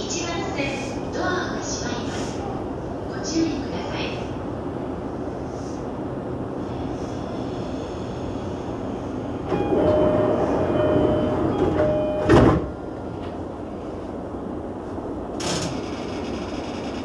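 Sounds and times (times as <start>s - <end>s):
two-note door chime: 9.5s - 12.4s
sliding doors shutting thud: 9.5s - 12.8s.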